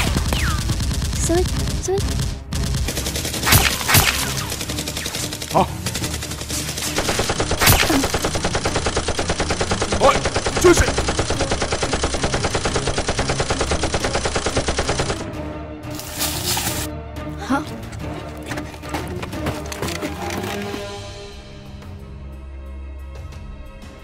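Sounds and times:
machine-gun fire: 0.0 - 15.2
single gunshots: 3.4 - 5.2, 6.8 - 8.5.

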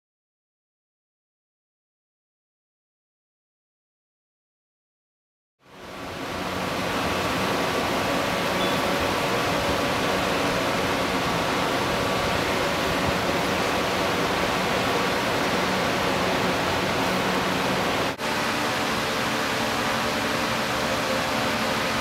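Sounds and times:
steady rushing noise: 5.7 - 22.0.

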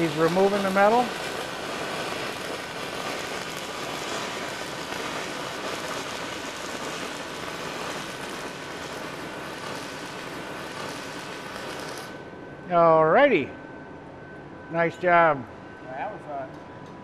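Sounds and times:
electric arc crackling hiss: 0.0 - 12.2.

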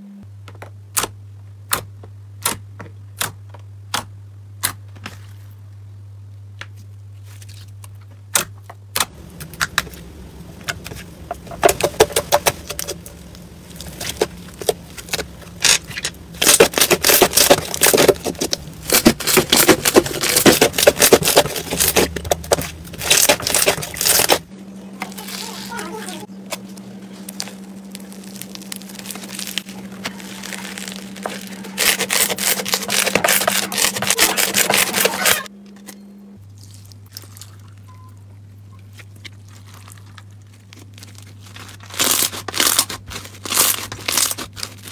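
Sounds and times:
slime popping and crackling: 8.9 - 24.4, 26.5 - 35.4, 39.1 - 44.9.

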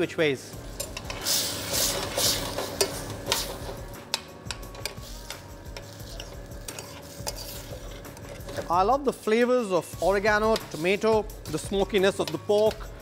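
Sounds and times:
metal ladle scraping saucepan: 4.7 - 8.7, 10.4 - 11.0.

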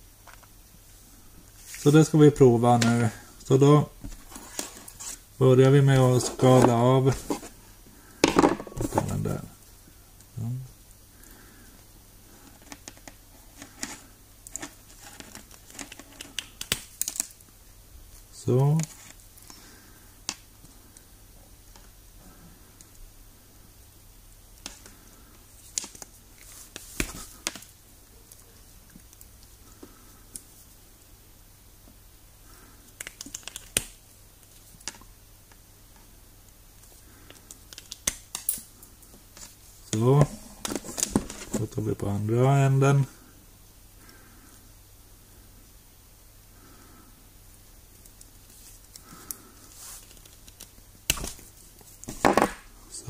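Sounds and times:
wire strippers clicking and snipping: 33.0 - 34.0, 37.3 - 38.7.

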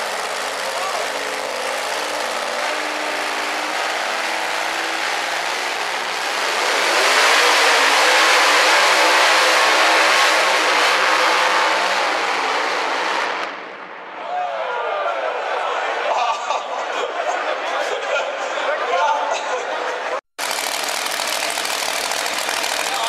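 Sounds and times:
pulling truck engine revving: 0.0 - 13.5, 20.4 - 23.0.

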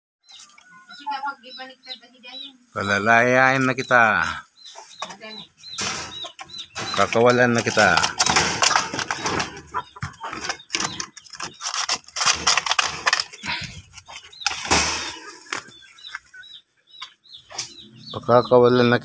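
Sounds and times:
bird wings flapping against cage: 7.8 - 9.6.

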